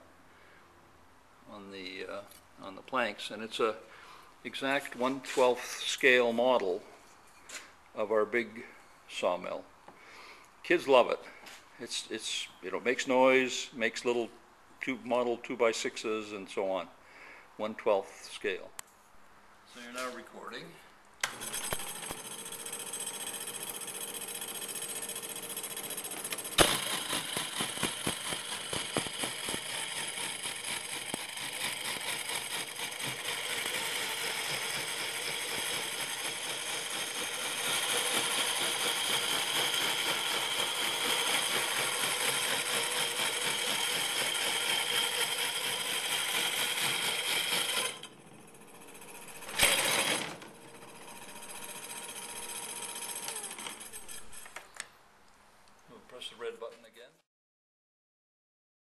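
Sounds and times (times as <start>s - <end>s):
model sawmill motor whine: 21.2s - 54.6s
rattle of small mechanical clicks: 21.2s - 54.9s
loud clatter: 25.2s - 51.9s.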